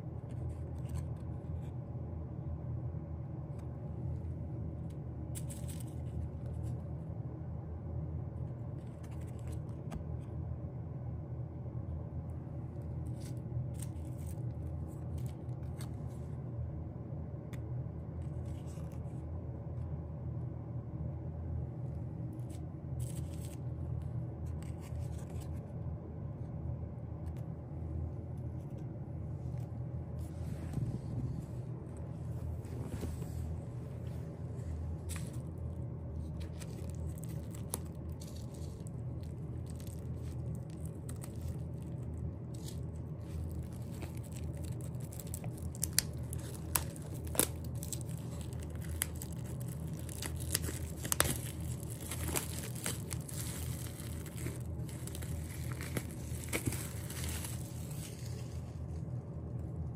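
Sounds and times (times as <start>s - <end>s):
steady low hum: 0.0s - 59.9s
paper and plastic rustling: 5.3s - 6.9s, 8.7s - 10.0s, 22.3s - 23.7s, 24.4s - 25.7s, 32.4s - 59.0s.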